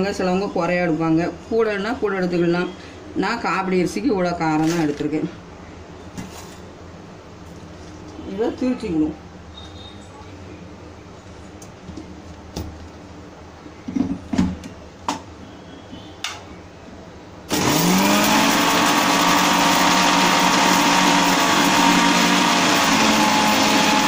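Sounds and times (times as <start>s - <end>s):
mixer grinder motor grinding: 17.5s - 24.0s.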